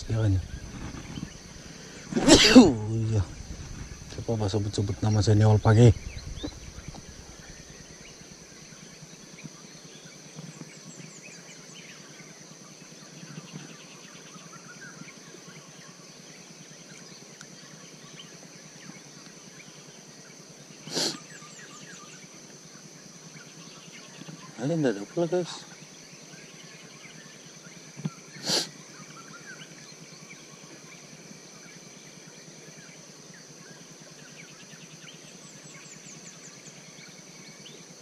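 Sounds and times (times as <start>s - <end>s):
faint bird calls: 0.0s - 12.4s, 20.8s - 22.4s, 23.2s - 32.7s
high-pitched insect drone: 0.0s - 38.0s.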